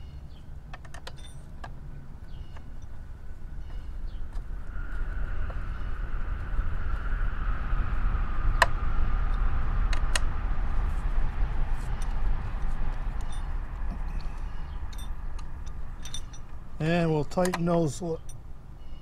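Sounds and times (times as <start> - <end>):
low rumble: 1.2 - 17.3
passing engine drone: 3.2 - 16.9.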